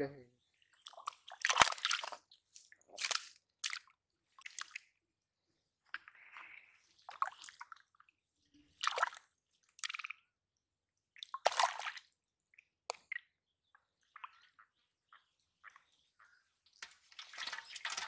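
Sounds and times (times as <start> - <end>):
muddy water splashing: 0.8 - 4.8, 8.7 - 9.2, 11.2 - 12.1
water dripping: 11.2 - 18.0.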